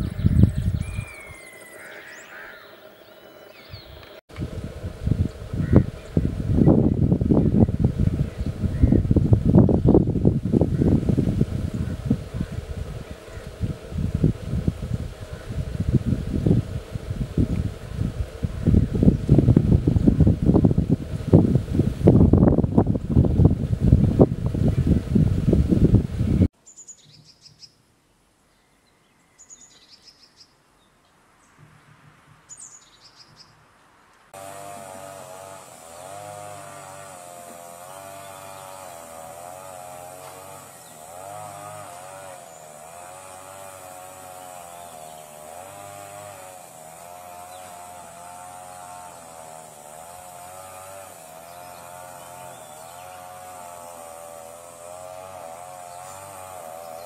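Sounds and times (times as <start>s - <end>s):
high bird chirps: 0.0s - 4.2s
wavering droning buzz: 34.4s - 57.0s.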